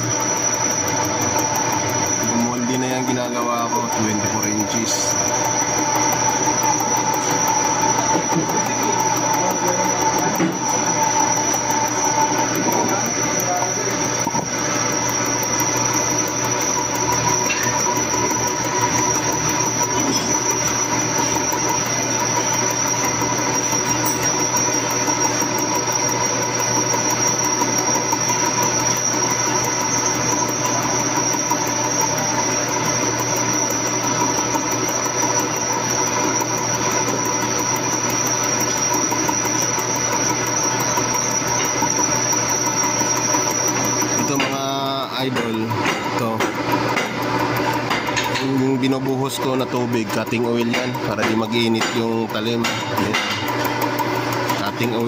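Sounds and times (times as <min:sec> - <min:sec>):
cutter squealing on metal: 0:00.0 - 0:55.0
milling machine running: 0:00.0 - 0:55.0.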